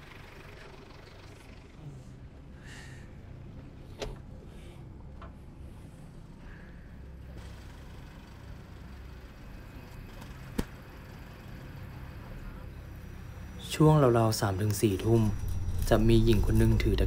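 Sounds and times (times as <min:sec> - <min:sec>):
pickup truck engine idling: 0:00.0 - 0:03.8.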